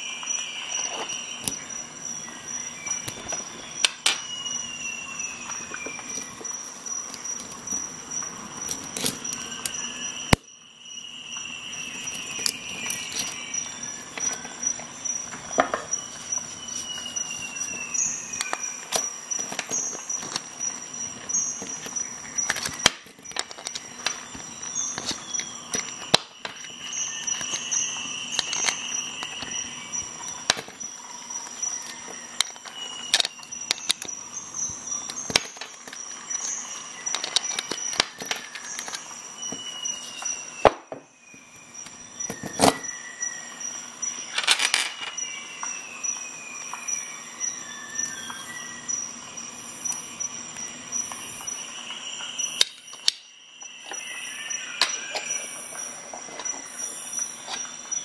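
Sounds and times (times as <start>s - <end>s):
steady high whine: 0.0s - 58.0s
metal links clinking: 44.3s - 45.2s.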